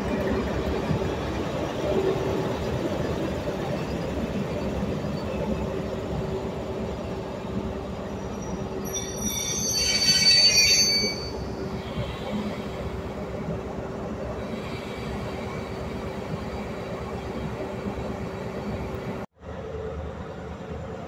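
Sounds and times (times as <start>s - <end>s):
diesel locomotive hum and rumble: 0.0s - 21.0s
metallic wheel squeal: 8.2s - 11.5s.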